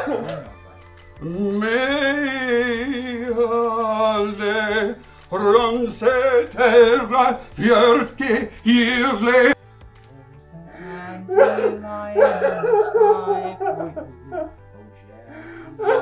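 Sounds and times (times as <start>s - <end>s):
man singing with vibrato: 1.2s - 9.6s.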